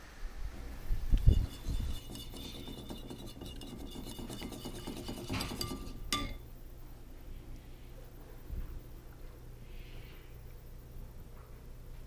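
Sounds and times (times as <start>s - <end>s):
spoon stirring in ceramic bowl: 1.2s - 6.5s.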